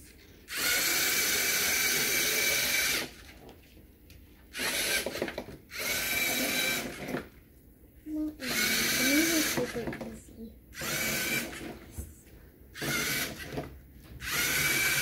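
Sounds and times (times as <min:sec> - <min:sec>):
servo motors whirring: 0:00.5 - 0:03.2, 0:04.5 - 0:07.3, 0:08.4 - 0:09.8, 0:10.8 - 0:11.8, 0:12.8 - 0:15.0.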